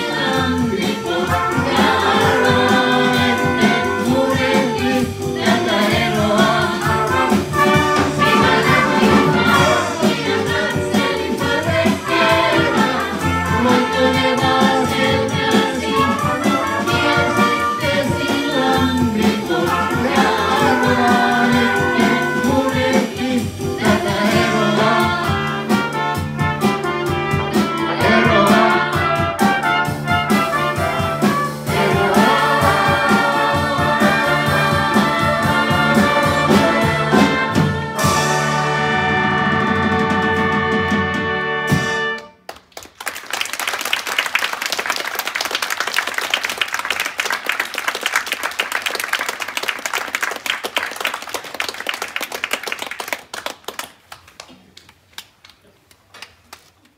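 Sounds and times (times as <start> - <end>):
big band with brass playing: 0.0 - 42.5
audience applauding: 42.4 - 56.9.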